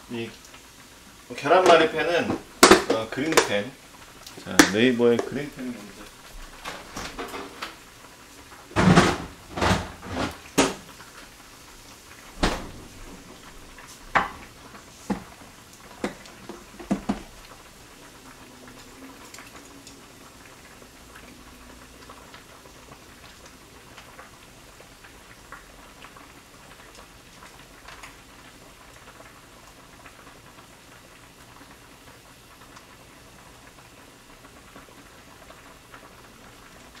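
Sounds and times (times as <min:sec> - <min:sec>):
plastic container knocks and clicks: 0:16.8 - 0:17.2.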